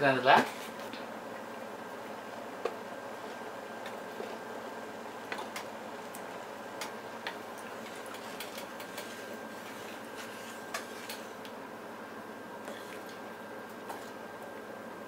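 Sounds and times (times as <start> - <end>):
spatula ticks and clicks: 8.1 - 9.1.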